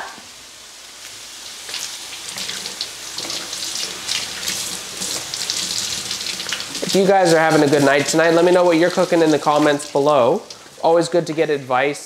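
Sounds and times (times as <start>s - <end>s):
faucet water splashing on leaves: 1.7s - 11.3s.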